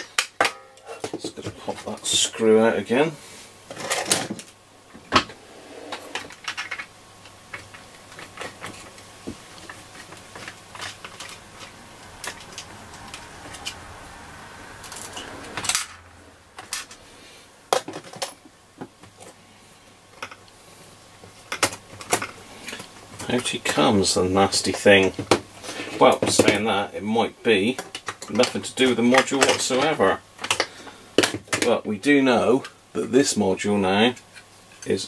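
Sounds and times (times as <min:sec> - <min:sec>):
metallic clicks and clinks: 0:14.8 - 0:16.0.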